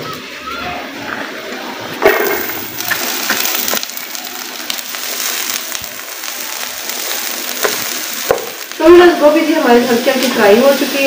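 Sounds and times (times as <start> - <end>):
cabbage sizzling in a frying pan: 2.5 - 11.0.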